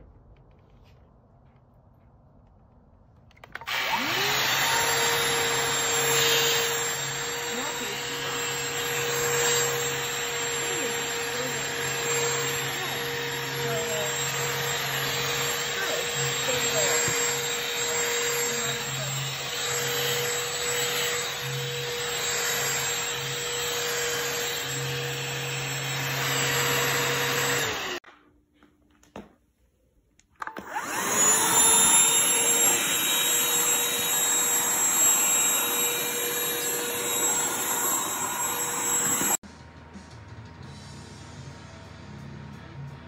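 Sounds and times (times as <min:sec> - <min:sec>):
handheld vacuum motor whine: 0:03.4 - 0:28.0, 0:30.4 - 0:39.4.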